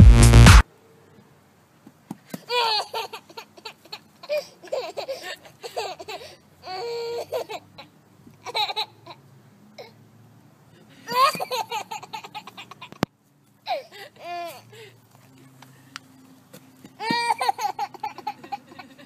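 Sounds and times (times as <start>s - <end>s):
toddler laughing: 2.4s - 9.9s, 11.0s - 14.8s, 16.9s - 19.0s.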